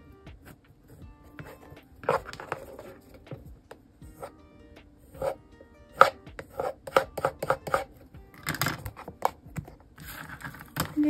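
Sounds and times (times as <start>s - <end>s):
soft background music: 0.0s - 11.0s
paper and cardboard clicks and rustles: 8.4s - 11.0s.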